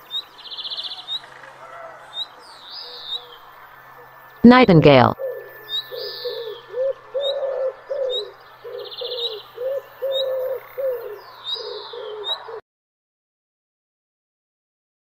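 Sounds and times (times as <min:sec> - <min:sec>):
bird cooing: 0:00.0 - 0:04.2, 0:05.2 - 0:12.6
high bird chirps and trill: 0:00.0 - 0:12.6.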